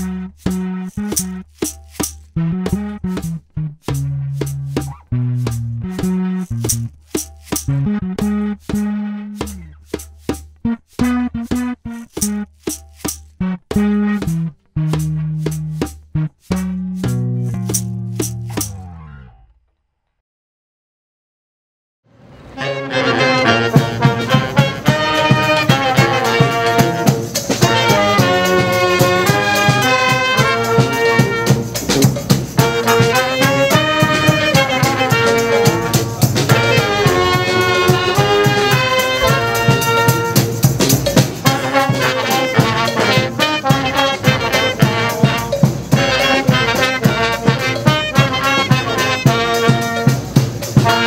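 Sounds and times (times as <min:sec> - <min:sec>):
brass band playing: 0:00.0 - 0:03.4, 0:04.4 - 0:09.7, 0:10.7 - 0:12.5, 0:13.4 - 0:14.6, 0:22.4 - 0:51.0.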